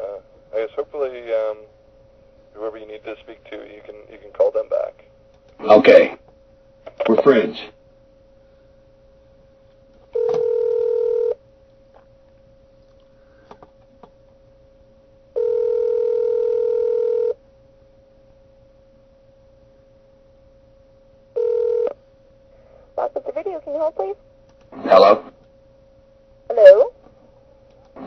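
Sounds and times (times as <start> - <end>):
telephone ringback tone: 10.1 - 11.4, 15.4 - 17.4, 21.4 - 22.0
faint steady tone: 14.3 - 23.2.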